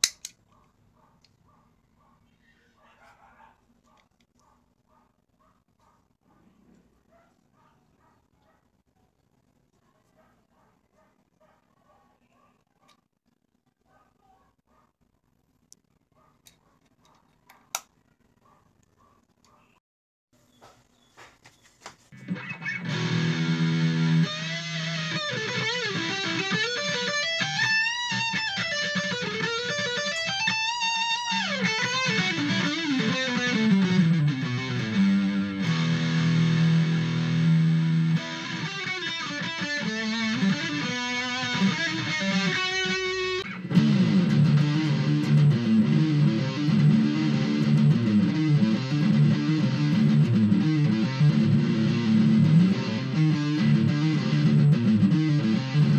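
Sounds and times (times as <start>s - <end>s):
distorted electric guitar: 22.2s - 55.9s.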